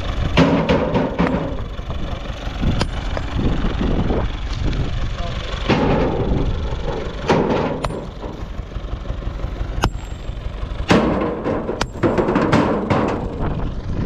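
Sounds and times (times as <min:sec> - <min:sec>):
tractor engine idling: 0:00.0 - 0:14.0
rocks clattering into metal trailer: 0:00.4 - 0:01.8, 0:05.6 - 0:08.6, 0:10.9 - 0:13.6.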